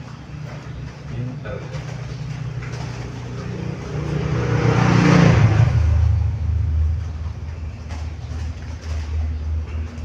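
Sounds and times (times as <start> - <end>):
low steady engine hum: 0.0 - 10.0
vehicle passing close by: 1.8 - 9.4.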